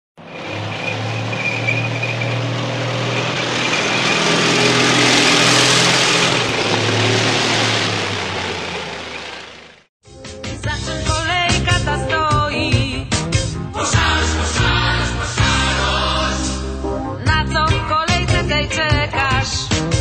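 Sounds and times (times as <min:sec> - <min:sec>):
vehicle engine passing: 0:00.2 - 0:09.9.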